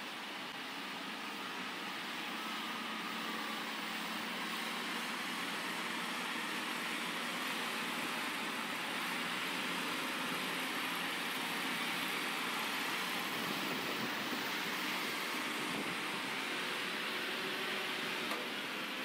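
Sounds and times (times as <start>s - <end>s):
heavy engine drone: 0.0s - 19.0s.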